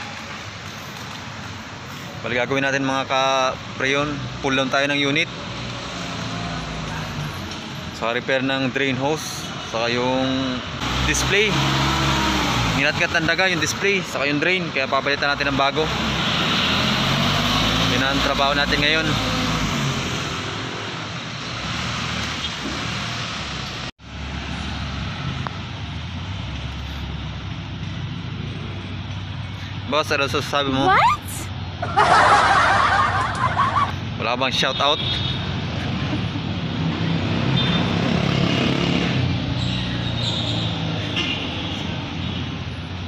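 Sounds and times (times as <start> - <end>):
traffic hiss: 0.0 - 4.3
road traffic noise: 0.0 - 43.0.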